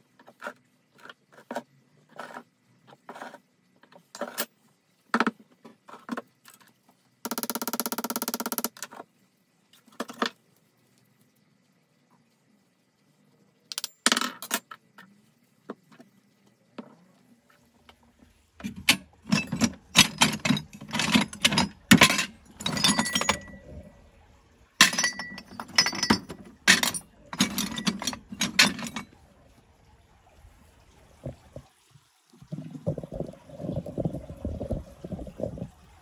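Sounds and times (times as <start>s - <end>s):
metal parts clattering: 18.6s - 24.0s, 24.8s - 29.2s.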